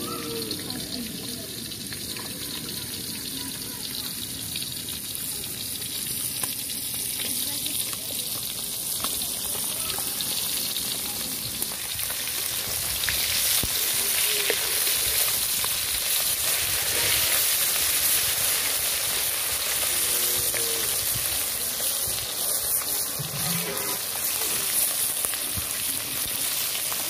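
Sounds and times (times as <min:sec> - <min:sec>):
fish sizzling in hot oil: 0:00.0 - 0:27.0
metal spatula scraping wok: 0:23.1 - 0:24.8.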